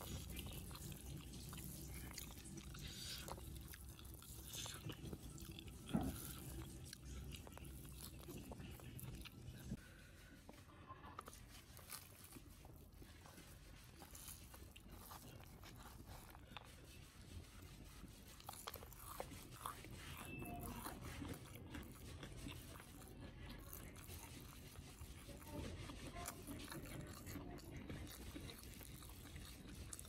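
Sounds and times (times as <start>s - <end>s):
person chewing: 0.0s - 9.9s, 11.2s - 30.0s.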